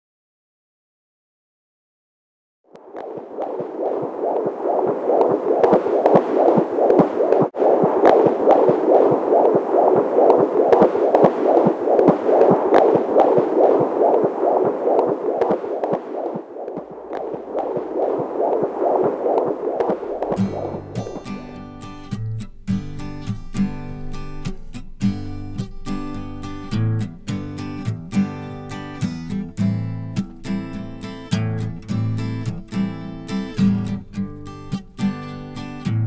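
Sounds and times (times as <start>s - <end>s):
fetal heartbeat on doppler monitor: 2.8s - 21.4s.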